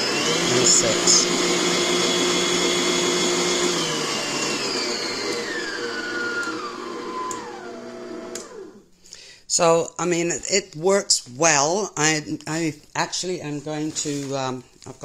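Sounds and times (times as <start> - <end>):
stand mixer motor whine: 0.0 - 8.8.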